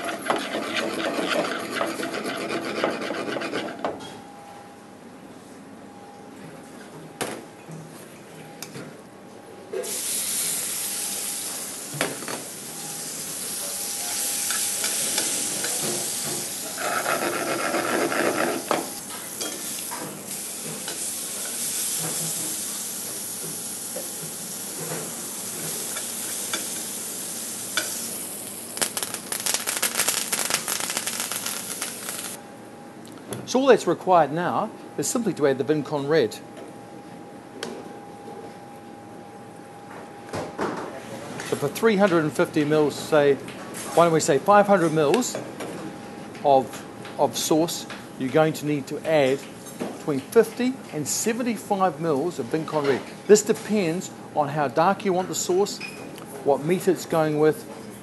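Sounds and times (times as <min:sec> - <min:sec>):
stirring with rapid clicking: 0:00.0 - 0:03.6
herbs sizzling in hot oil: 0:12.5 - 0:16.9, 0:19.3 - 0:32.4.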